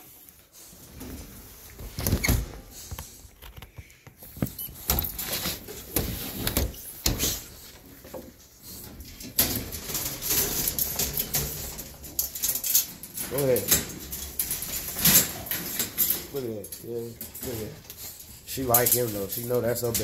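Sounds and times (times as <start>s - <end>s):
rustling: 0.0s - 20.0s
dog paws knocking metal crate: 9.0s - 17.8s.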